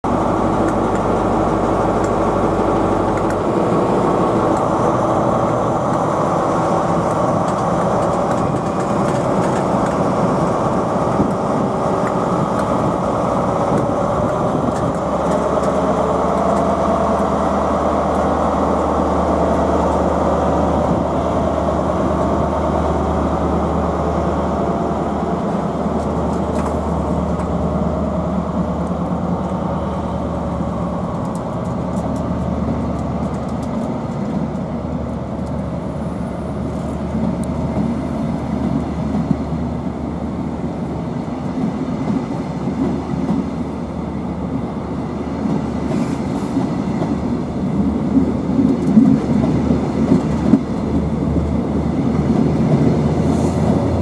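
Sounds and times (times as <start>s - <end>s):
diesel train engine drone: 0.0s - 54.0s
train coaches rolling past: 0.0s - 54.0s.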